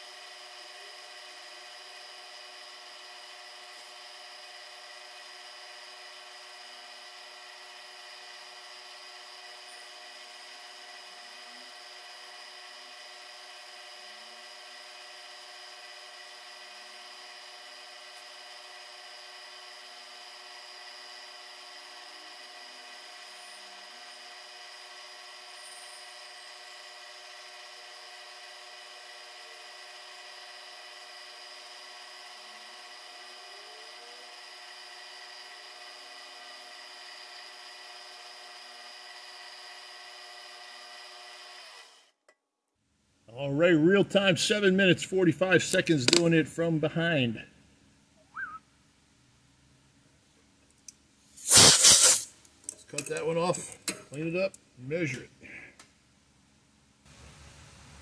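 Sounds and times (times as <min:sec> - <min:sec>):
milling machine whine: 0:00.0 - 0:42.0.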